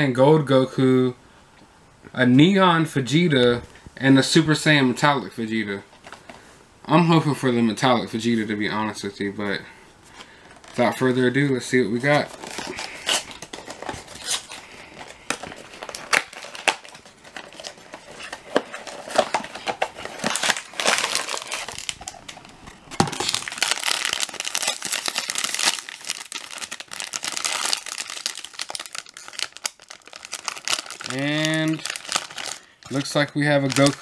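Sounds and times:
foil bag crinkling: 11.9s - 34.0s
cardboard box tearing: 15.4s - 21.9s.

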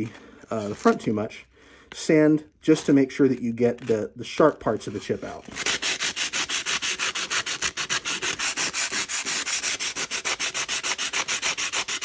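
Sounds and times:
sandpaper scraping on plate: 5.6s - 12.0s.

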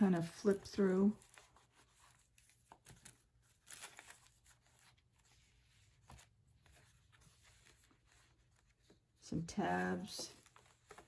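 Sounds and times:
paper pages rustling: 0.0s - 11.0s.

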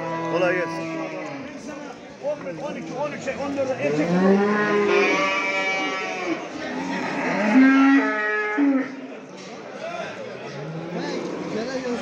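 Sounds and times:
cattle mooing: 3.8s - 9.0s.

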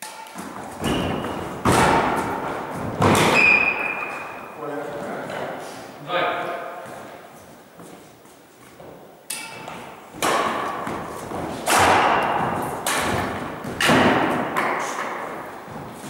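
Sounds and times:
racket hitting shuttlecock: 0.0s - 5.6s, 9.2s - 16.0s.

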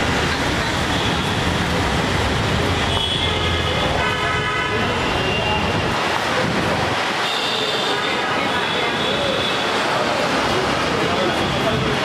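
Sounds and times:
traffic engines and tyres: 0.0s - 12.0s
vehicle horns: 2.8s - 6.0s, 7.2s - 9.8s.

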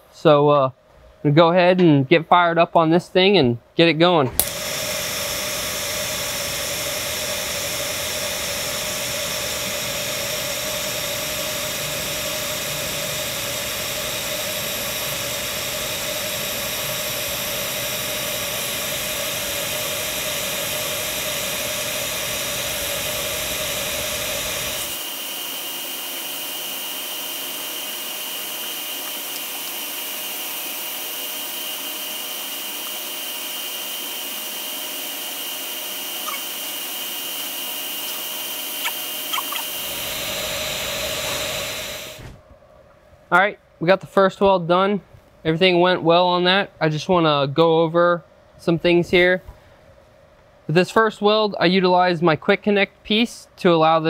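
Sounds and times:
welding arc hiss: 4.4s - 42.4s
thin high whine: 4.4s - 43.6s.

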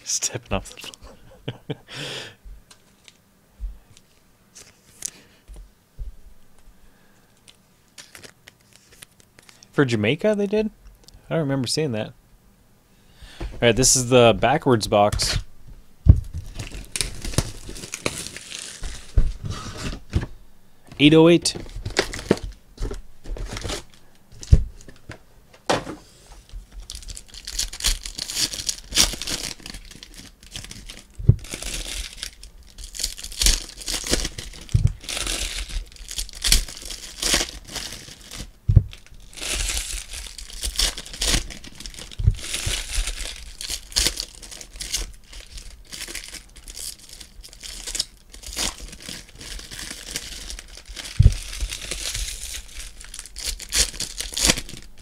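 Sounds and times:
foil packs crinkling: 6.9s - 9.7s, 16.3s - 20.2s, 20.9s - 25.2s, 26.4s - 55.0s
foil pack tearing: 8.0s - 9.6s, 16.4s - 20.0s, 21.7s - 25.0s, 26.8s - 55.0s.

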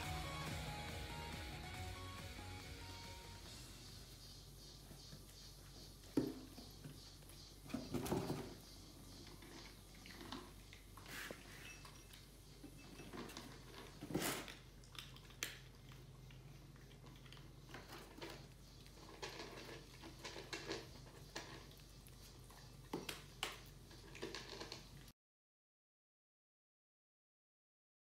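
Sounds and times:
cats crunching kibble: 8.9s - 25.1s.

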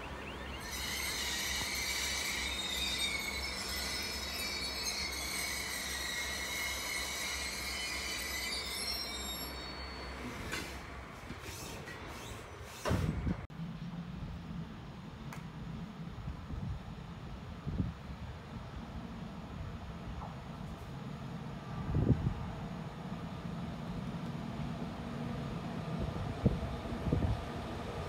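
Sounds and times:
train wheels squealing: 0.0s - 13.1s.

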